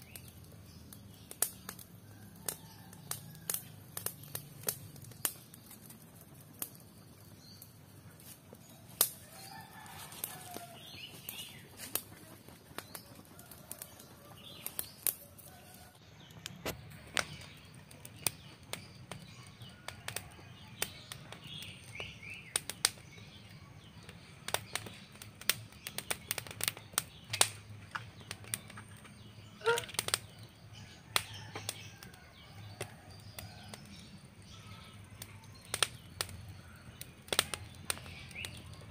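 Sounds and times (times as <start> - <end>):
wood fire crackling: 0.0 - 38.9
faint bird calls: 29.4 - 30.2.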